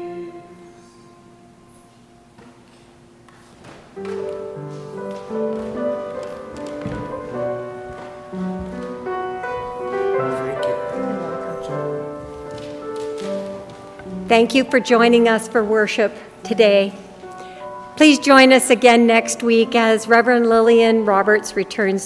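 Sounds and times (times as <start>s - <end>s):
instrumental piano music: 3.9s - 22.0s.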